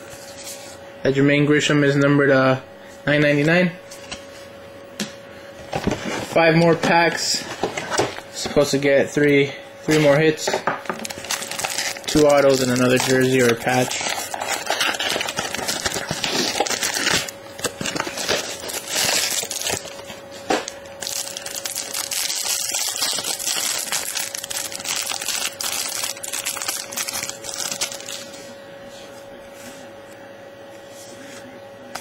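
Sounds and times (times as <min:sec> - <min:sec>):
foil wrapper crinkling: 0:10.9 - 0:28.3.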